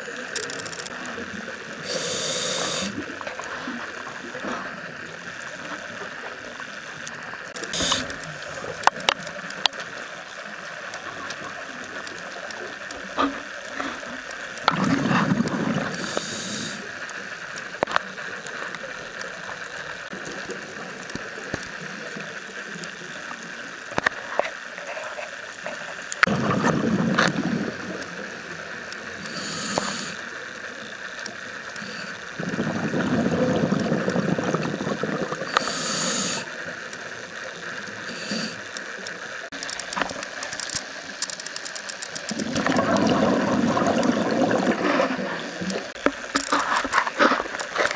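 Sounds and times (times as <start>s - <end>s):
scattered clicks: 0.2s - 1.2s, 7.0s - 10.0s, 37.7s - 43.0s
underwater hiss: 1.6s - 6.6s, 7.6s - 9.1s, 14.7s - 17.8s, 26.2s - 36.7s, 37.6s - 39.2s
hissing regulator inhalations: 1.8s - 3.0s, 7.6s - 8.3s, 15.8s - 16.9s, 29.1s - 30.2s, 31.7s - 33.2s, 35.3s - 36.5s, 37.8s - 38.8s
exhaled bubbles rushing: 14.6s - 16.1s, 26.2s - 28.9s, 32.2s - 36.4s, 42.3s - 46.4s.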